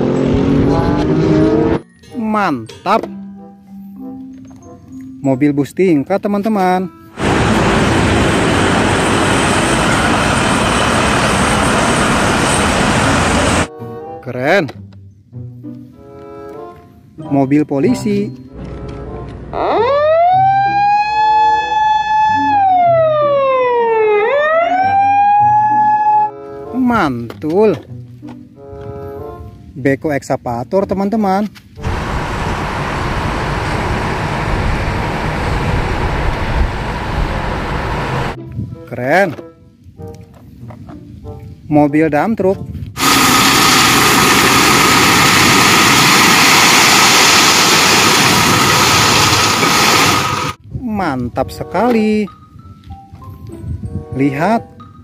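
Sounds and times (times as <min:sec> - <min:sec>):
hydraulic whine: 0:07.2 - 0:13.7, 0:31.8 - 0:38.4, 0:43.0 - 0:50.6
truck engine running: 0:07.2 - 0:13.7, 0:31.8 - 0:38.4, 0:43.0 - 0:50.6
police siren wailing: 0:19.5 - 0:26.4.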